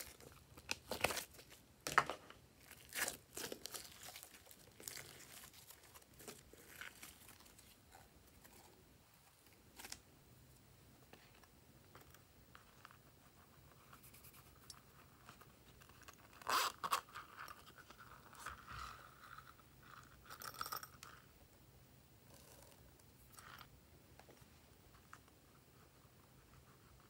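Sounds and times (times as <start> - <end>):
plastic sprinkles scraping and rustling: 2.6 - 7.8.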